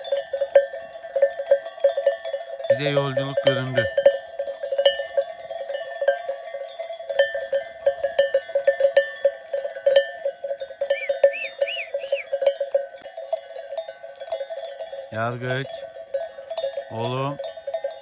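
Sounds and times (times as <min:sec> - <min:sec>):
sheep bells clanking: 0:00.0 - 0:18.0
short high chirps: 0:10.9 - 0:12.3.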